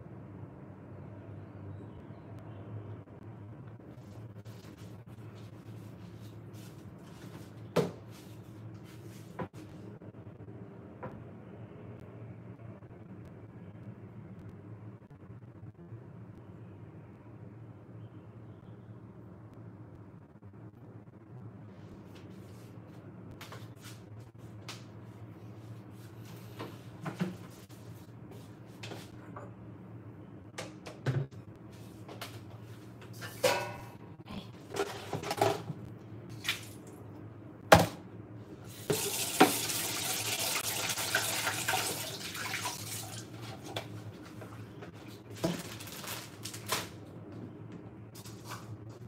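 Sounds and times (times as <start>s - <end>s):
low steady hum: 8.4s - 39.0s
dishes clattering and knocking: 33.2s - 34.0s, 34.7s - 35.8s
tap water running: 38.9s - 44.6s.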